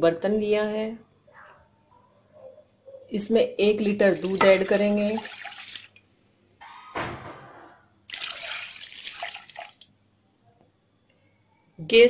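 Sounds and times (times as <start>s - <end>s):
milk pouring into a metal pot: 4.1s - 6.0s, 8.1s - 9.9s.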